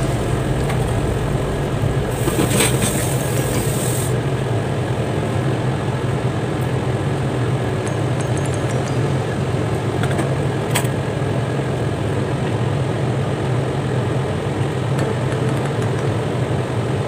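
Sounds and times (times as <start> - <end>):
hiss: 0.0 - 4.3
low motor hum: 0.0 - 7.7.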